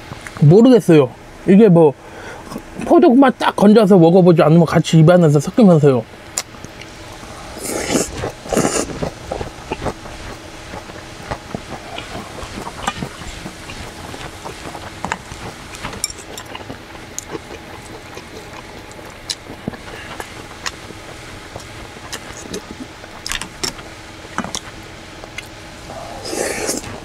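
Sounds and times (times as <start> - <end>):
faint steady hum: 0.0 - 27.0
person chewing: 6.4 - 27.0
person slurping noodles: 7.4 - 10.8, 25.9 - 27.0.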